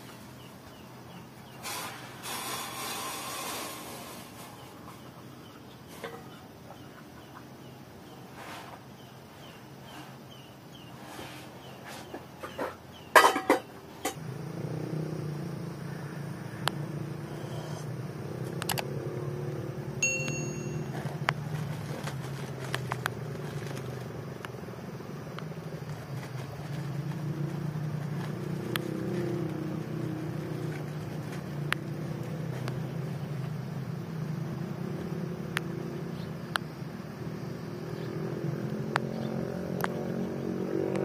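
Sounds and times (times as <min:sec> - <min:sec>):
low engine-like drone: 0:14.0 - 0:41.0.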